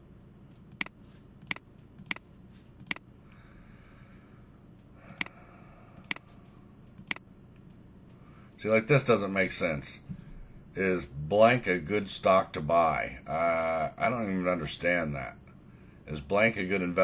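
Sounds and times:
computer mouse clicking: 0.5 - 3.0, 5.1 - 5.4, 6.0 - 7.8.

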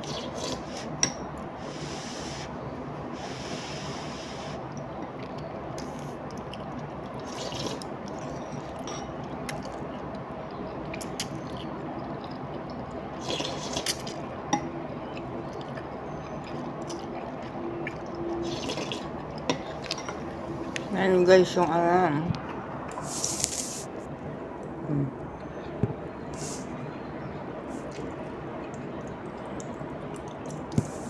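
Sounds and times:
slurping noodles: 0.0 - 0.9, 7.2 - 7.9, 13.2 - 14.2, 18.4 - 19.8
low background hum: 0.0 - 31.0.

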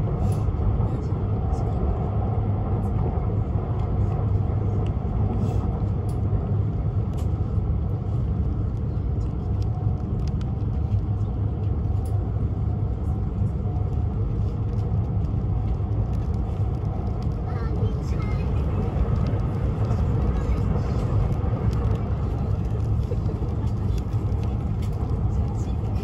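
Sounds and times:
train rumble inside cabin: 0.0 - 26.0.

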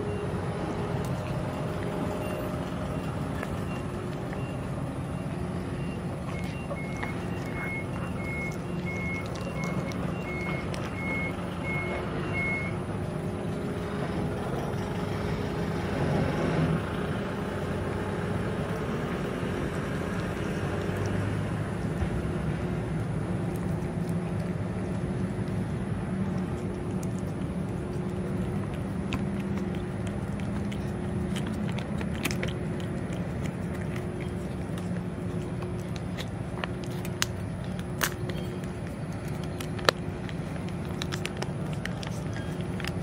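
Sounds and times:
vehicle engine running: 0.0 - 43.0
reversing alarm beeping: 1.5 - 12.8.

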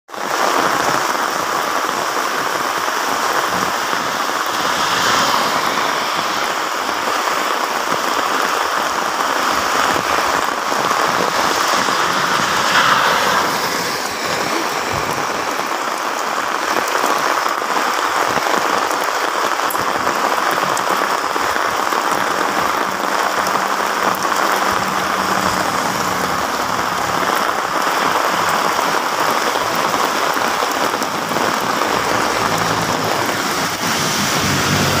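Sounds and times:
heavy rain on road: 0.1 - 35.0
truck passing on wet road: 0.2 - 18.0, 19.9 - 35.0.

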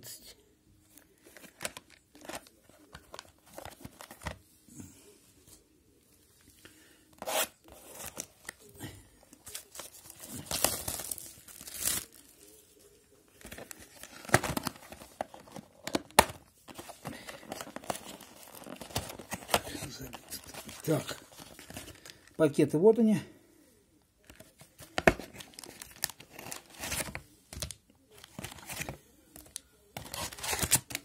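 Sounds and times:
plastic wrapping crinkling: 1.0 - 4.4, 9.4 - 22.4, 24.8 - 31.0
plastic wrapping ripping: 9.4 - 12.3, 30.0 - 31.0.

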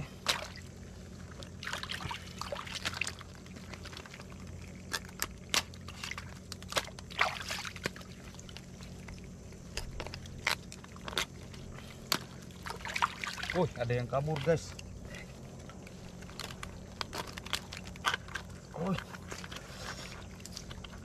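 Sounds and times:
hands splashing in shallow water: 1.3 - 9.2, 12.1 - 13.8.

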